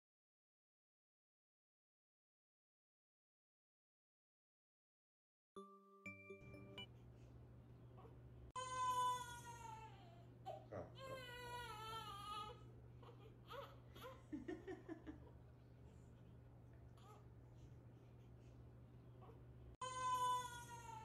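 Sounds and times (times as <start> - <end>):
baby whimpering: 8.0 - 14.2
newborn baby crying: 8.0 - 14.3, 17.0 - 17.3, 19.2 - 21.0.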